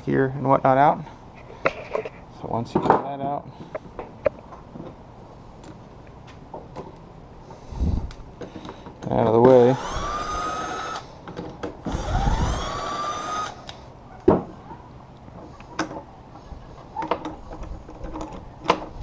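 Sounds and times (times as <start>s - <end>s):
impact driver whirring: 9.6s - 11.1s, 11.8s - 13.7s.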